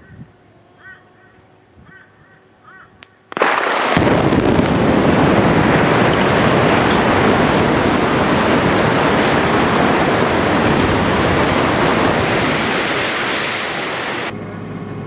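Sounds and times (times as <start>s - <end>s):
building collapsing crash: 3.4s - 14.3s.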